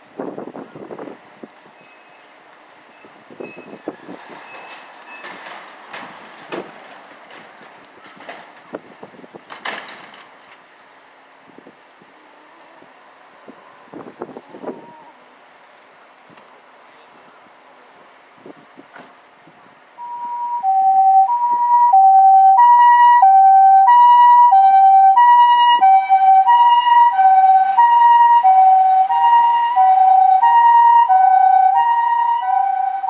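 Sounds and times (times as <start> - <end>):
two-tone ambulance siren: 20.0 - 33.0.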